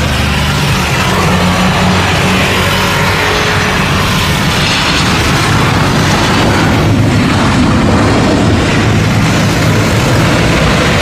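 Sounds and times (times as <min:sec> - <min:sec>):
airliner jet engines roaring: 0:00.0 - 0:11.0.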